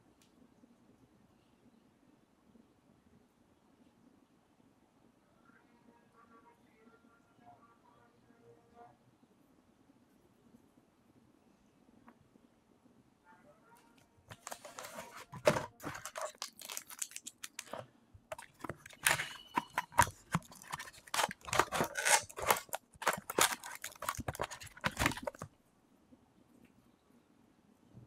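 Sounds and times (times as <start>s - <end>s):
cardboard and plastic crinkling: 14.3s - 25.5s.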